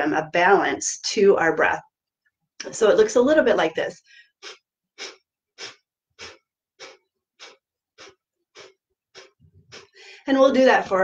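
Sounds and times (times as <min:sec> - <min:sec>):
forceful nasal exhales: 0:04.0 - 0:10.3
quiet inhales: 0:04.0 - 0:10.3.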